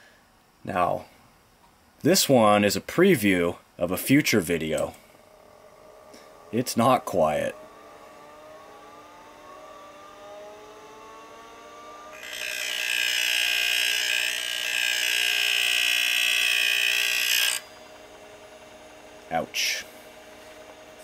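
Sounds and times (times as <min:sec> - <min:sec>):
hard drive spinning up whine: 0:04.4 - 0:14.0, 0:15.7 - 0:21.0.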